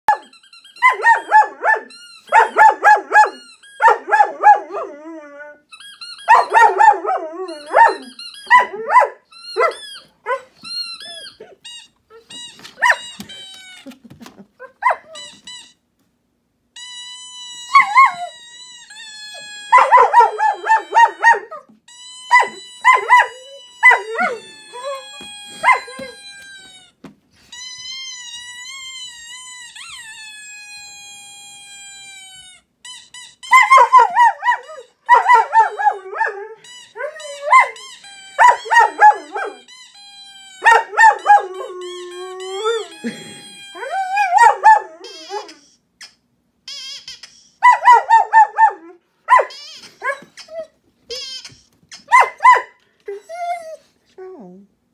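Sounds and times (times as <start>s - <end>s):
squeaky toy squeaks: 0.1s - 15.9s, 16.7s - 53.9s
dog howling: 22.4s - 26.2s.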